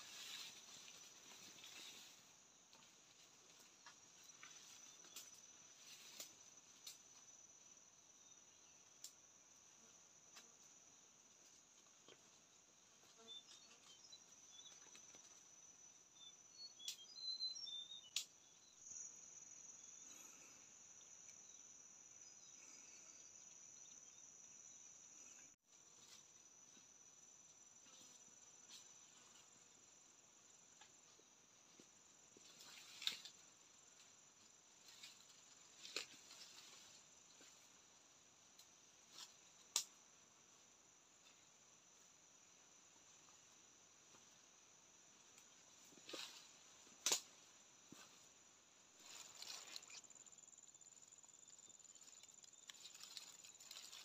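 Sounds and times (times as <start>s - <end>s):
cracks and rustles in undergrowth: 0.0s - 7.4s, 30.8s - 40.1s, 45.2s - 50.4s, 51.0s - 54.0s.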